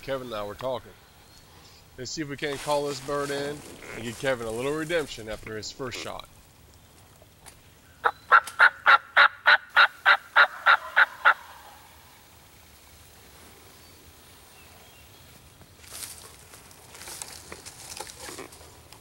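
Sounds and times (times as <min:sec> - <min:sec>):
turkey call yelps: 0:08.0 - 0:11.9.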